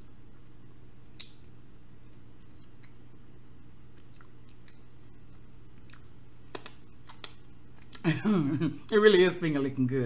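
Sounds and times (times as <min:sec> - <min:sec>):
steady low hum: 0:00.0 - 0:10.0
wet chewing and lip-smacking: 0:01.2 - 0:01.4, 0:03.9 - 0:08.0.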